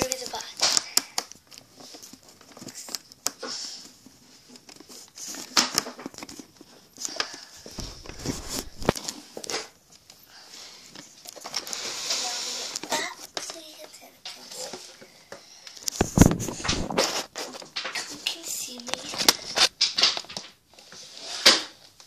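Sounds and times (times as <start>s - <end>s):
phone handling rustles: 4.5s - 9.7s.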